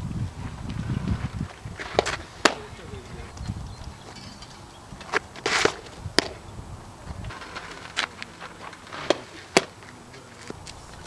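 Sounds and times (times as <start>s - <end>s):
softball smacking into leather mitt: 5.1s - 6.4s, 8.9s - 9.8s.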